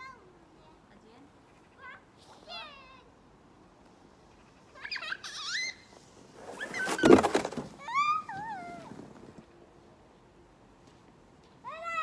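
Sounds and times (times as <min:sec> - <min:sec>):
child squealing: 0:04.8 - 0:05.9, 0:07.8 - 0:09.0
snow tube sliding rush: 0:06.0 - 0:09.5.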